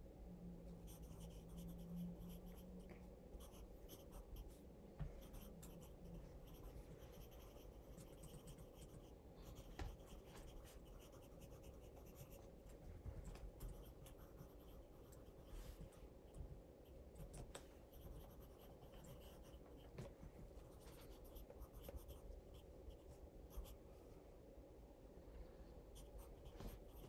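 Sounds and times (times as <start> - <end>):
pencil scratching on paper: 0.8 - 12.5, 13.6 - 15.7, 17.9 - 19.9, 20.7 - 23.8.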